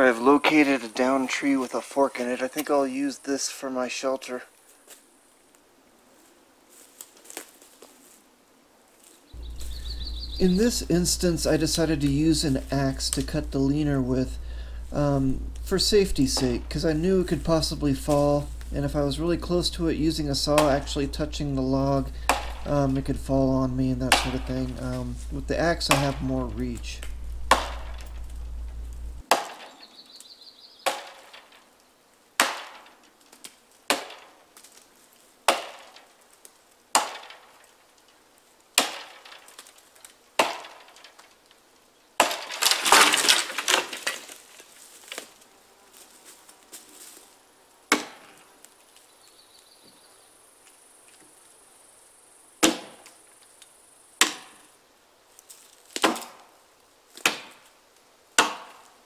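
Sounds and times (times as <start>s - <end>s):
wood cracking and splintering: 9.4s - 29.8s, 30.8s - 31.7s, 32.4s - 41.6s, 42.2s - 45.4s, 55.5s - 56.5s
axe chopping wood: 20.5s - 21.0s, 22.2s - 23.0s, 24.0s - 25.0s, 25.8s - 26.3s, 27.4s - 28.3s, 29.2s - 29.8s, 30.8s - 31.5s, 32.4s - 33.0s, 33.9s - 34.4s, 35.5s - 36.1s, 36.9s - 37.5s, 38.8s - 39.4s, 40.4s - 41.0s, 42.2s - 44.3s, 47.9s - 48.4s, 52.6s - 53.0s, 54.2s - 54.6s, 55.9s - 56.4s, 57.2s - 57.7s, 58.4s - 58.9s.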